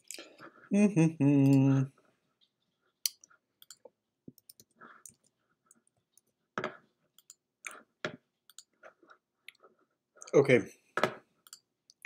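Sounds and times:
mouse and keyboard clicks: 8.5s - 8.7s.

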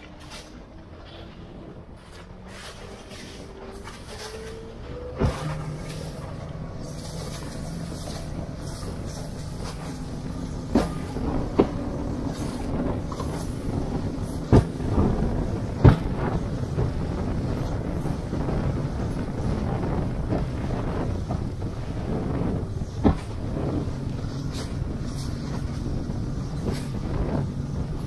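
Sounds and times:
outboard motor hum: 0.0s - 28.0s
rushing water: 0.0s - 28.0s
wind: 0.0s - 28.0s
aluminum hull slamming on waves: 10.6s - 17.4s.

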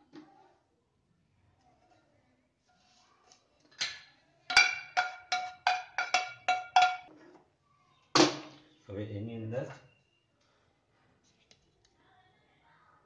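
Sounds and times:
metal pan knocking on steel vessel: 4.5s - 7.1s.

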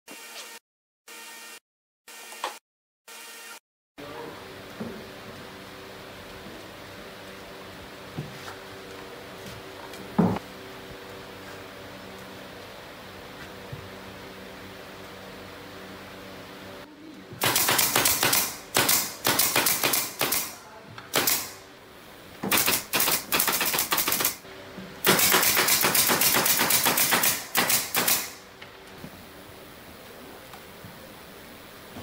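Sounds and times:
nail gun firing into plywood: 17.4s - 21.6s, 22.5s - 24.4s, 25.0s - 28.4s.

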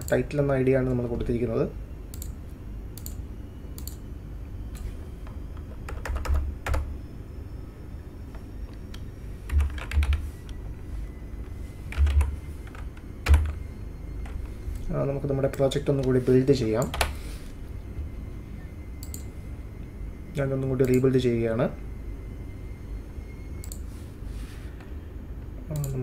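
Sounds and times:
low steady hum: 0.0s - 26.0s
typing on computer keyboard: 5.6s - 6.9s, 9.5s - 10.2s, 11.9s - 13.6s.

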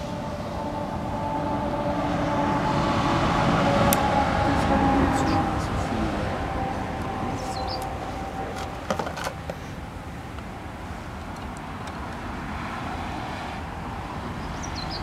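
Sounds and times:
low rumble: 0.0s - 8.9s.

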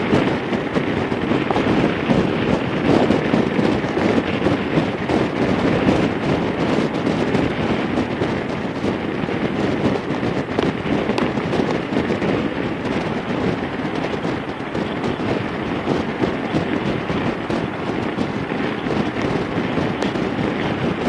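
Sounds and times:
engine and road noise: 0.0s - 21.0s
wind buffeting microphone: 0.0s - 21.0s.

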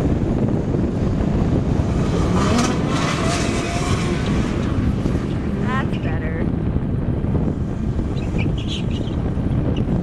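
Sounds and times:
car engine revving: 0.0s - 6.2s
wind rumble on microphone: 0.0s - 10.0s.

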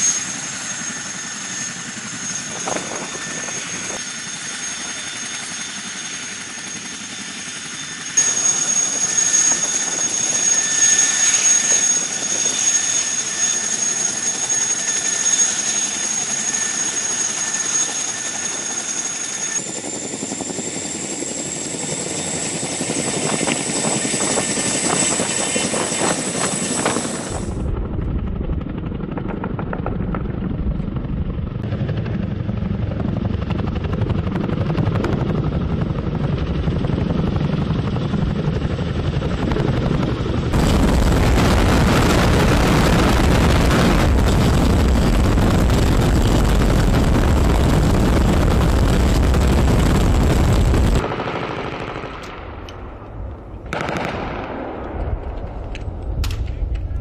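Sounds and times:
helicopter rotors chopping: 0.0s - 57.0s
gunshots: 50.8s - 56.9s.

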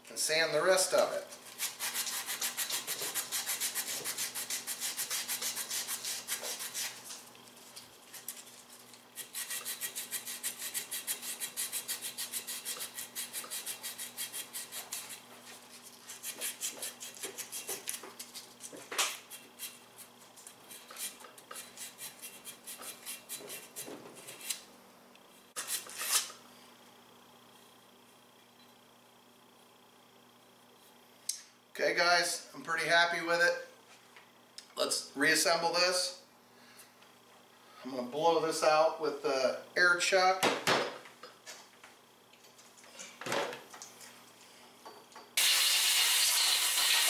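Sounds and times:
sandpaper rubbing metal: 1.6s - 7.0s, 9.2s - 15.2s, 20.7s - 24.5s.

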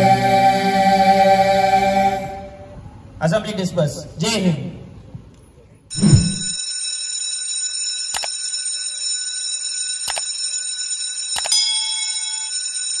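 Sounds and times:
high ringing chime: 6.3s - 13.0s
notification bell ding: 11.4s - 12.6s.

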